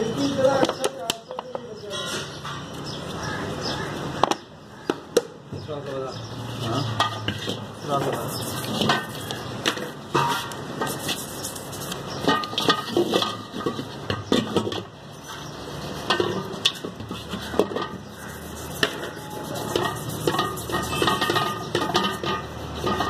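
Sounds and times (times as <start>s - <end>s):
stiff brush scraping metal: 6.5s - 23.0s
metal clinking against basin: 19.2s - 23.0s.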